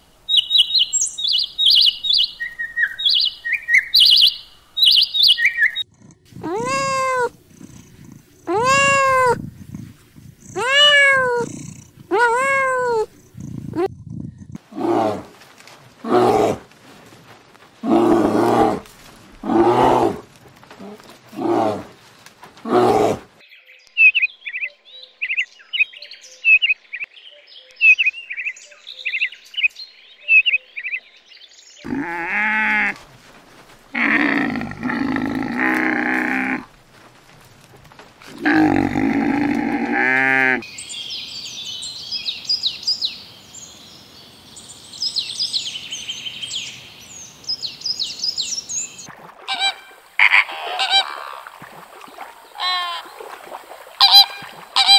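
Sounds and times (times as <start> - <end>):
high bird chirping: 0.3 - 5.9
pitched animal calls: 5.7 - 15.3, 33.9 - 36.7, 38.3 - 40.6, 49.4 - 51.7, 52.5 - 53.1, 54.0 - 54.9.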